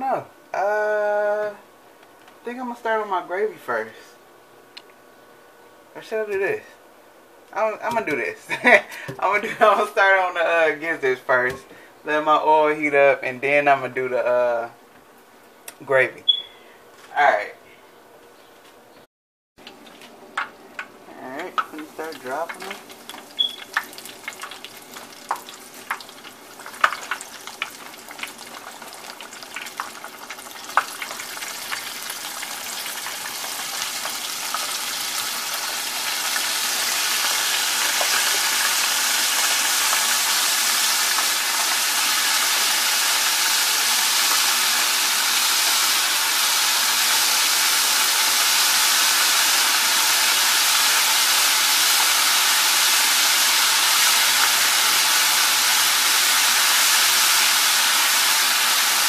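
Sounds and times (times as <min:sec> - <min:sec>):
food deep-frying in hot oil: 0:19.6 - 0:59.0.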